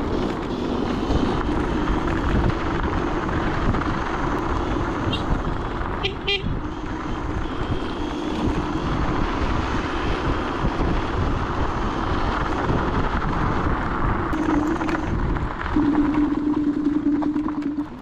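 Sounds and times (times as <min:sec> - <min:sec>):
road rumble: 0:00.0 - 0:18.0
wind on microphone: 0:00.0 - 0:18.0
low steady hum: 0:14.4 - 0:18.0.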